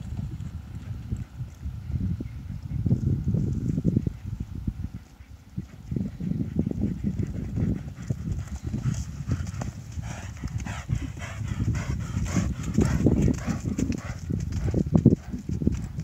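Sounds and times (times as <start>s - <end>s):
horse hoofbeats on dirt: 5.6s - 16.0s.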